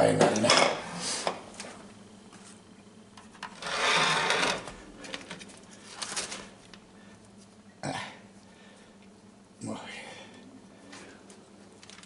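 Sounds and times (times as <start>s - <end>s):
plate sliding on cutting board: 3.6s - 4.6s.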